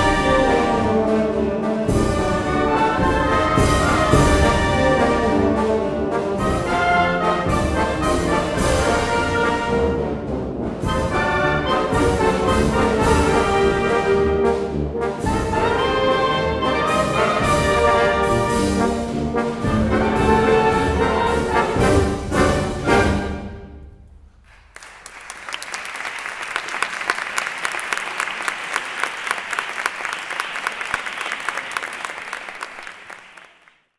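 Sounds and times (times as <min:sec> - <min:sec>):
wind band playing pasodoble: 0:00.0 - 0:23.8
audience applauding: 0:24.5 - 0:33.9.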